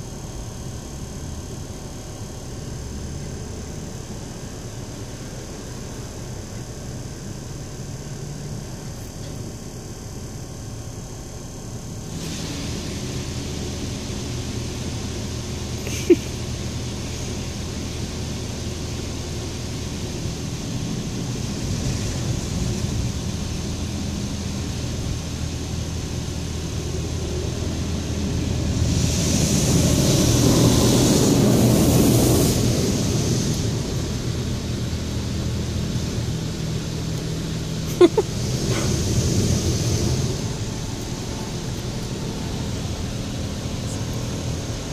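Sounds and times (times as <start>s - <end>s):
car wash mechanical hum: 0.0s - 44.9s
water hissing on car: 12.0s - 44.9s.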